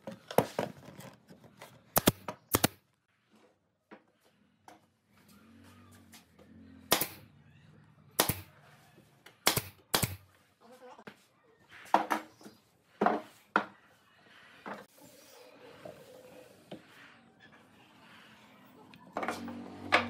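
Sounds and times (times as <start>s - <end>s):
pneumatic nail gun firing: 6.9s - 7.2s, 8.2s - 8.5s, 9.4s - 10.2s.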